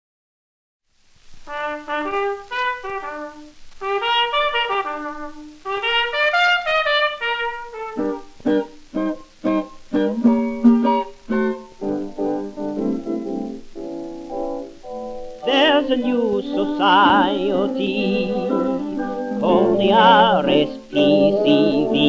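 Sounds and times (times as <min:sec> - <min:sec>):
brass-led band melody: 0:01.5 - 0:13.5, 0:16.5 - 0:22.0
short separate band chords: 0:01.5 - 0:15.6.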